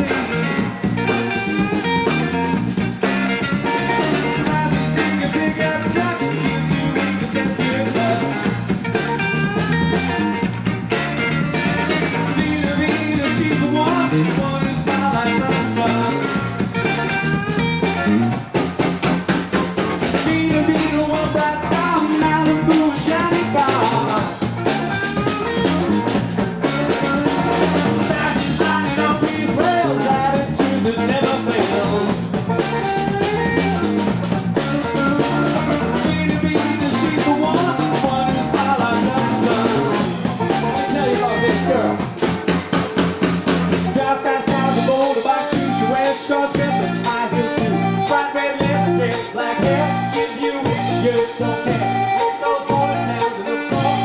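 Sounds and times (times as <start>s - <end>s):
man singing: 0.0s - 0.8s, 3.8s - 8.6s, 12.2s - 16.5s, 20.1s - 24.8s, 27.6s - 32.7s, 35.1s - 42.2s, 43.8s - 54.0s
blues-rock band playing: 0.0s - 54.0s.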